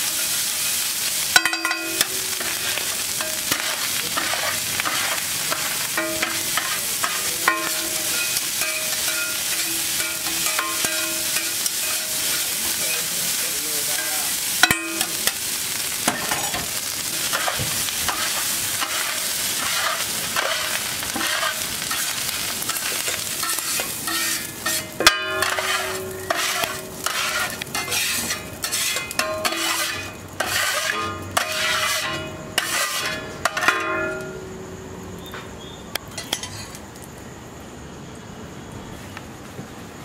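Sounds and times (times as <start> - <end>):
rice sizzling on a griddle: 0.0 - 40.0
metal spatulas stirring and chopping: 1.3 - 15.4, 16.1 - 22.1, 22.7 - 34.3
metal clanks into a steel bowl: 1.4 - 2.6, 5.5 - 12.1, 14.0 - 15.4, 23.4 - 34.4.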